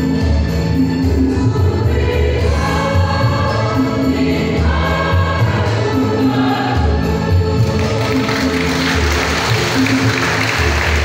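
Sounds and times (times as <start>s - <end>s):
women's choir singing a hymn: 1.4s - 8.7s.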